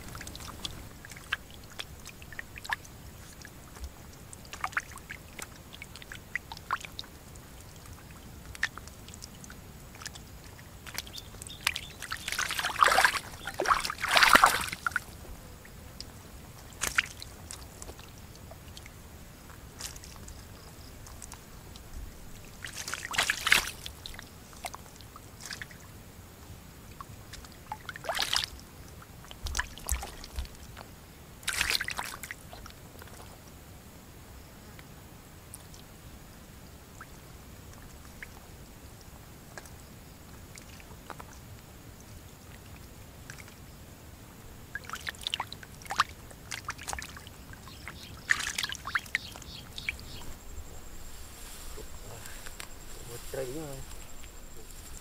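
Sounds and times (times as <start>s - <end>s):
water sloshing: 0.0s - 15.3s, 16.5s - 25.8s, 29.2s - 33.3s, 44.7s - 55.0s
small clicks and drips: 0.0s - 33.6s, 34.7s - 36.0s, 36.8s - 43.7s, 44.6s - 51.6s.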